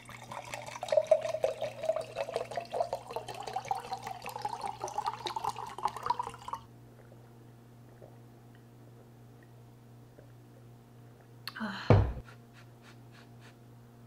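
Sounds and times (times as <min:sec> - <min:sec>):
liquid pouring into glass jar: 0:00.0 - 0:06.7.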